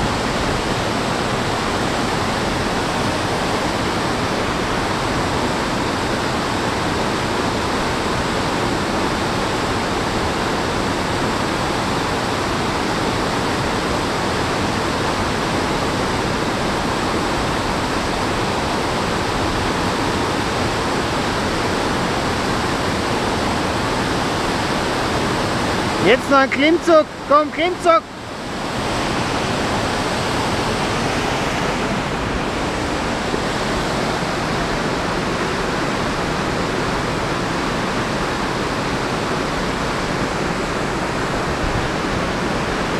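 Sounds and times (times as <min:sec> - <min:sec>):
water rushing over rocks: 0:00.0 - 0:42.9.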